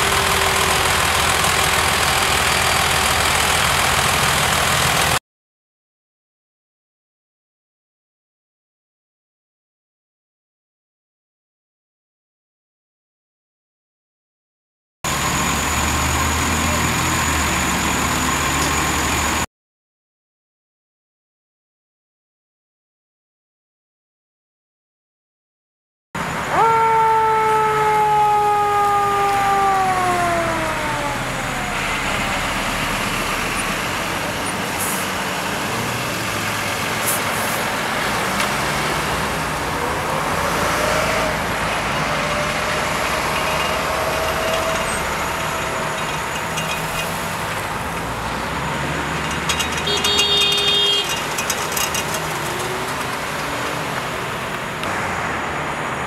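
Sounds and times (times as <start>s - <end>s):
siren winding down: 0.0s - 2.6s, 26.4s - 33.7s, 40.8s - 46.7s
heavy truck engines: 0.0s - 5.2s, 15.1s - 19.5s, 26.2s - 56.0s
passing traffic: 0.0s - 5.2s, 15.1s - 19.5s, 26.2s - 56.0s.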